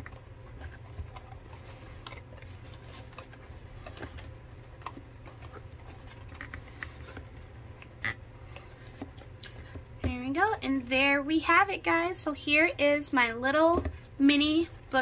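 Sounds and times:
paper books tapping and scraping: 0.0 - 11.2
steady low hum: 0.0 - 15.0.

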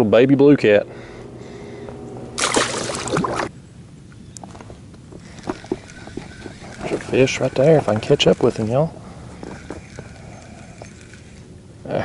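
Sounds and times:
fish splash in water: 2.4 - 3.5.

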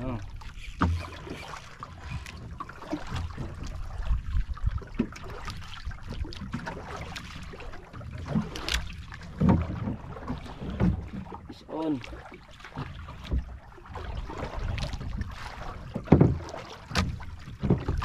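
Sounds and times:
water lapping against hull: 0.0 - 18.0
wind on microphone: 3.4 - 6.3.

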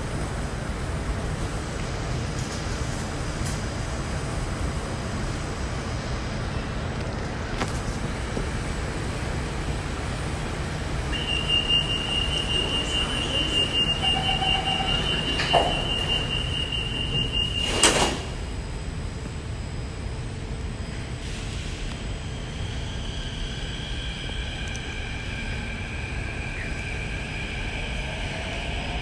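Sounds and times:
train humming: 0.0 - 29.0
high steady warning tone: 11.0 - 18.2
sliding doors banging shut: 17.6 - 18.4.

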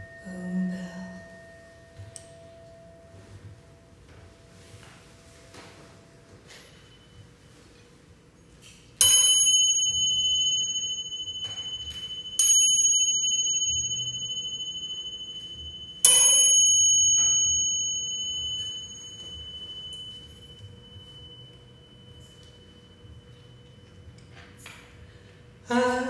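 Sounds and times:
small metal bell struck: 9.0 - 24.9.

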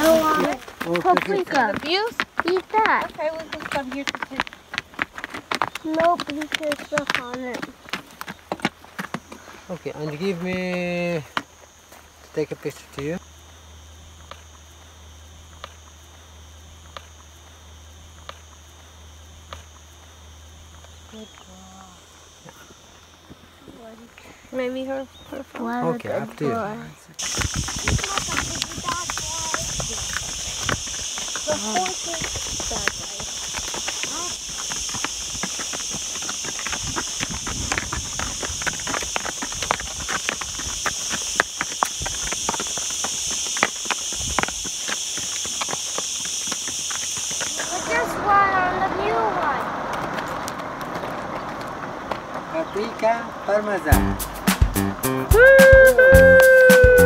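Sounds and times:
hooves clip-clopping on stone trail: 0.0 - 57.0
high-pitched insect drone: 25.9 - 49.8
high-pitched hiss: 26.0 - 49.7, 52.7 - 57.0.

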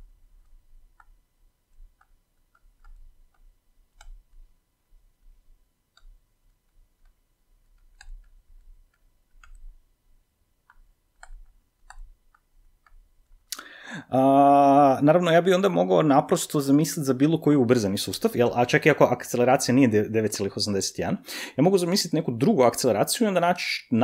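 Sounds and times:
stylus tapping on tablet: 5.9 - 9.8, 10.6 - 13.0.

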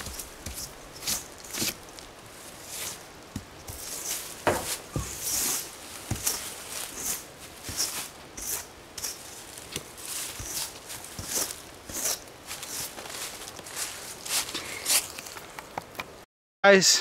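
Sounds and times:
footsteps on rough ground: 0.0 - 16.0.

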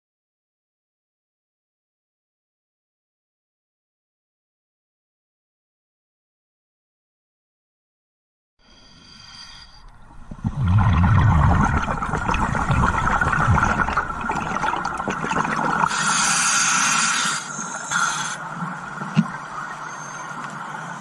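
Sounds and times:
hissing regulator inhalation: 8.7 - 9.9, 15.8 - 18.5
diver exhaling bubbles underwater: 10.1 - 17.1.

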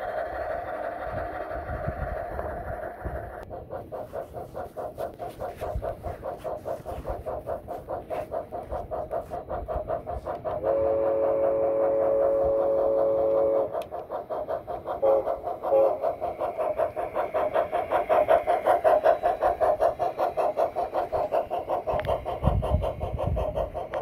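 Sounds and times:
steam locomotive chuffing: 0.0 - 24.0
steam whistle blasts: 10.6 - 13.7, 15.0 - 16.0.

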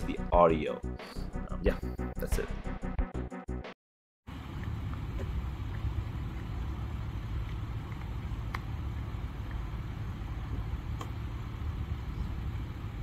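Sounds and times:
low outdoor rumble: 4.3 - 13.0.

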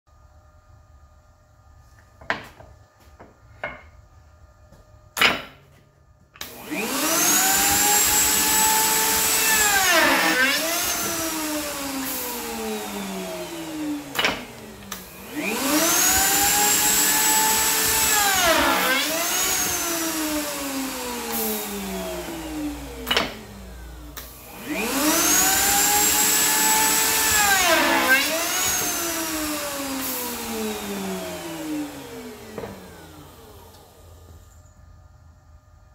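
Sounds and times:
router motor whine: 6.4 - 34.4.

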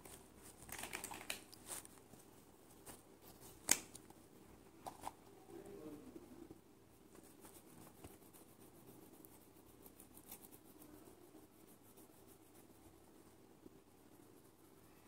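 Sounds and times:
marker scratching on phone case: 7.2 - 13.0.

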